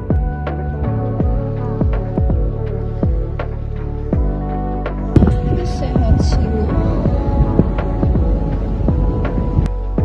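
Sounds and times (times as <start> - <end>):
low thuds dropping in pitch: 5.2 - 9.7
sustained chords: 5.2 - 9.9.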